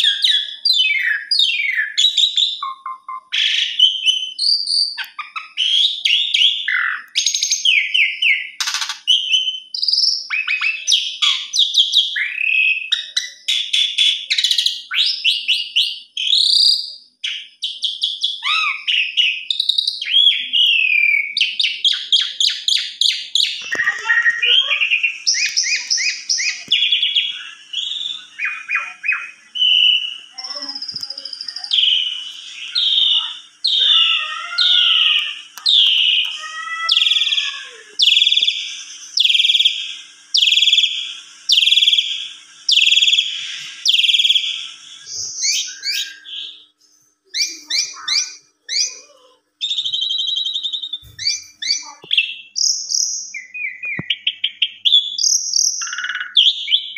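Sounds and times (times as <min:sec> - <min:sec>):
starling singing trills and whistles: 0:00.0 - 0:56.9
faint steady hum: 0:16.8 - 0:56.9.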